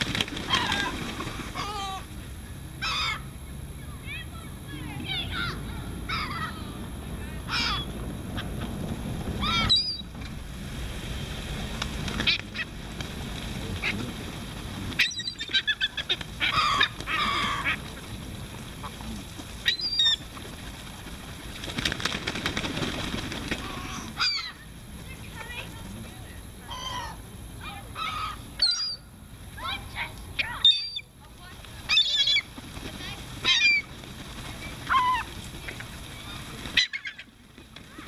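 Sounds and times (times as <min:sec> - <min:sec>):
gulls calling: 0:00.0 - 0:10.4, 0:11.6 - 0:38.0
low wind rumble: 0:00.0 - 0:30.4.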